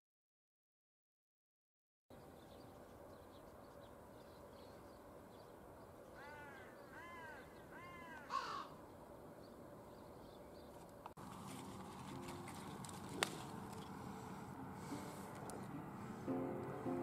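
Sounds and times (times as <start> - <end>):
crow cawing: 6.2 - 8.8.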